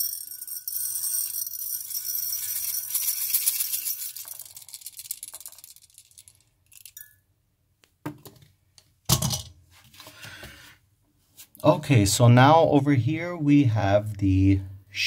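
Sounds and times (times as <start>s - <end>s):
pellets clinking against ceramic mug: 0.0s - 7.1s.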